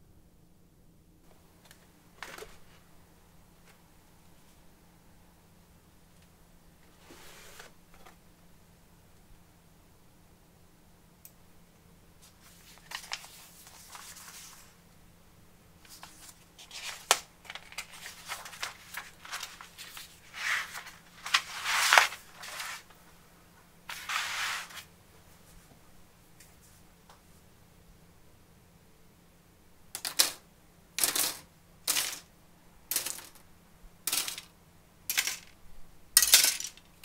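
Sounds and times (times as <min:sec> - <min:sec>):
paper pages rustling: 0:01.6 - 0:02.8, 0:12.2 - 0:14.8, 0:15.8 - 0:23.0, 0:23.9 - 0:24.9.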